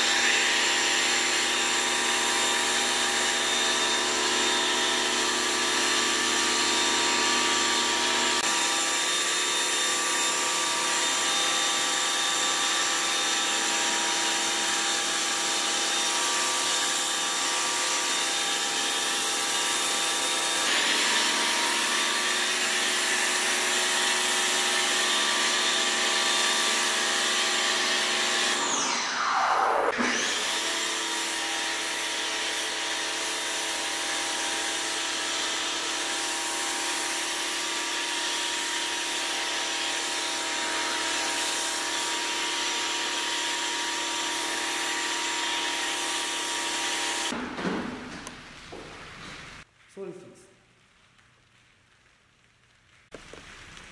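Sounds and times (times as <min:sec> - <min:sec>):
pressure washer motor whine: 0:19.8 - 0:37.6.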